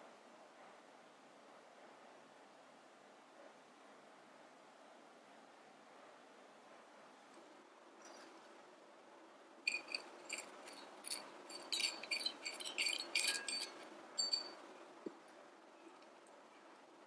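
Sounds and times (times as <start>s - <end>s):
metal bowl clinking on pot rim: 9.7s - 14.6s.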